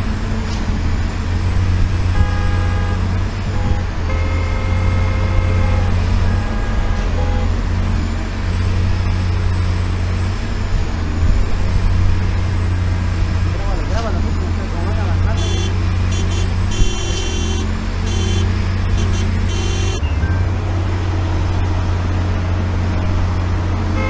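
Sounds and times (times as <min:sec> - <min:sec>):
low rumble of road vehicles: 0:00.0 - 0:24.0
horn-like tones: 0:02.1 - 0:07.7, 0:15.3 - 0:20.0.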